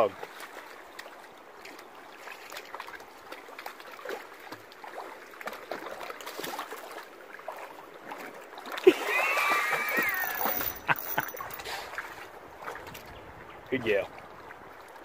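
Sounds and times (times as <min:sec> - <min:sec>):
stream trickling: 0:00.0 - 0:15.0
dog splashing through water: 0:02.2 - 0:10.4.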